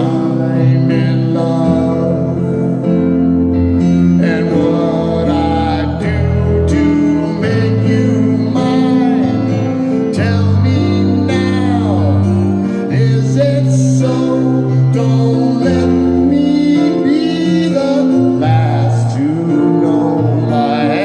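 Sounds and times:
man singing into a microphone: 0.0 - 21.0.

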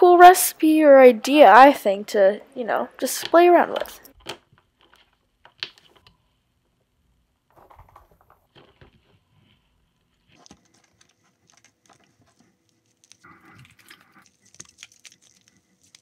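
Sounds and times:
small clicks and pops: 3.2 - 6.2, 10.3 - 16.0
sticky slime squishing: 10.0 - 16.0.

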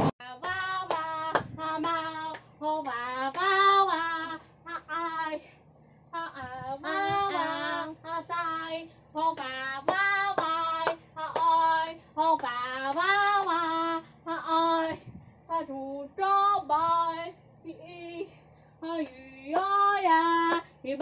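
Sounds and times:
hands clapping: 0.4 - 3.5, 12.4 - 13.6
girl singing long sliding notes: 6.2 - 17.2.

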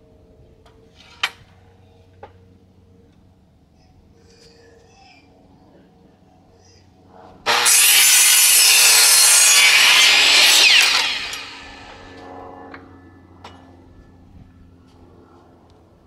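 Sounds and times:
electric miter saw cutting wood: 7.4 - 12.8
saw blade winding down whine: 7.5 - 12.8.

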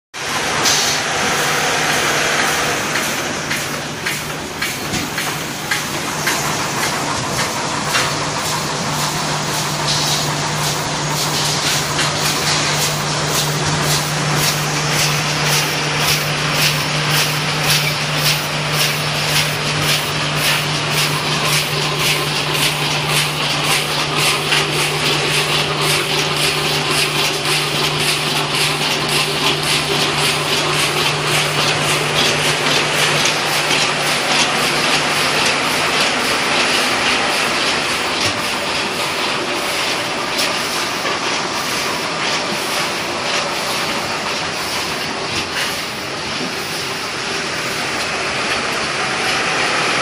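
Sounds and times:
low machine hum: 0.2 - 49.4
packing machine clattering: 2.7 - 49.5.

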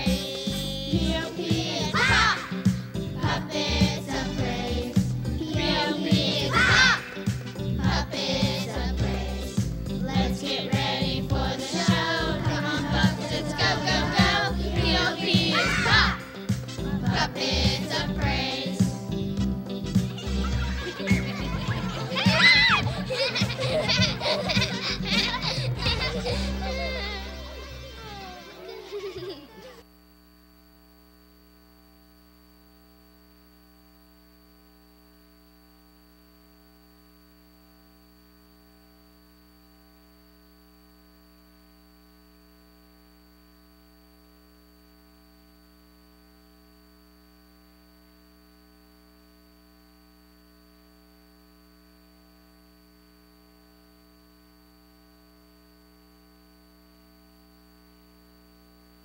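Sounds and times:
burst of music: 0.0 - 29.8
electrical mains hum: 0.0 - 59.0
thin high whine: 0.0 - 59.0.

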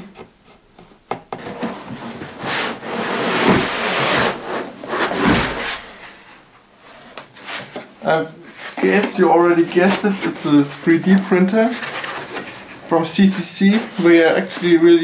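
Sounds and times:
foam scraping against cardboard box: 1.5 - 6.0.

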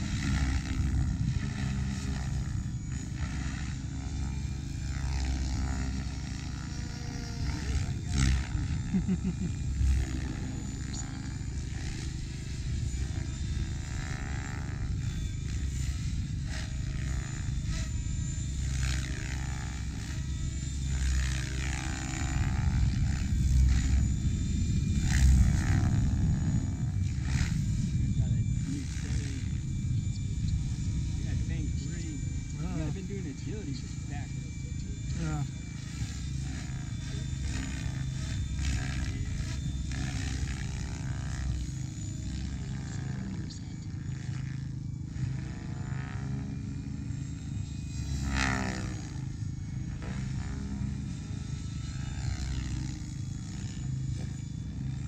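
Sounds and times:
electric motor whine: 0.0 - 55.0
rotor blades swooshing: 0.0 - 55.0
heavy low rumble: 22.3 - 35.5.

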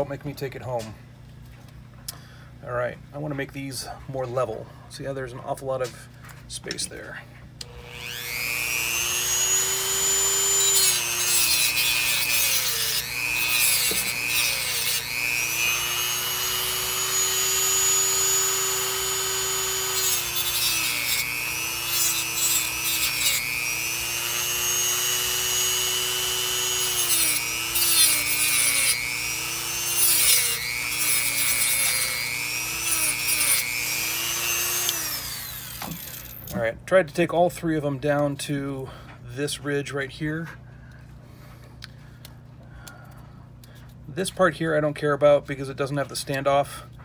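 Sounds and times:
rotary tool grinding plastic: 7.6 - 36.6.

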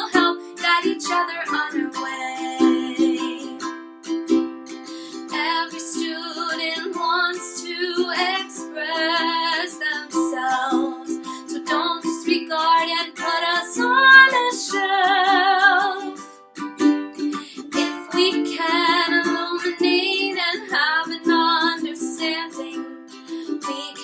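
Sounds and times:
woman singing with vibrato: 0.0 - 3.7, 5.2 - 16.3, 17.5 - 24.0
ukulele strumming: 0.0 - 24.0.

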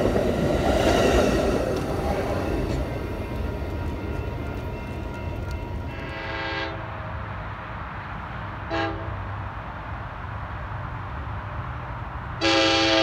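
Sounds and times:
train rumble: 0.0 - 13.0
train horn: 5.9 - 7.1, 8.7 - 9.2, 12.4 - 13.0.

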